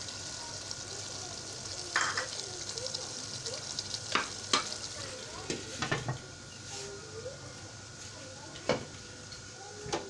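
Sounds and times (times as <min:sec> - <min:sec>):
curry sizzling in a pan: 0:00.0 - 0:10.0
utensils knocking on pan: 0:04.1 - 0:04.8.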